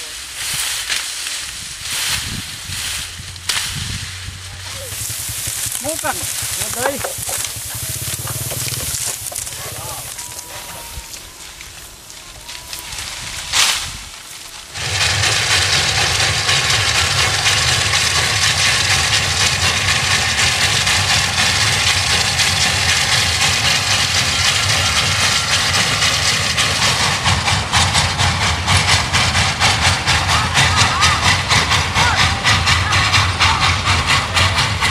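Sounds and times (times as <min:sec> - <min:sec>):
steam locomotive chuffing: 0:00.0 - 0:34.9.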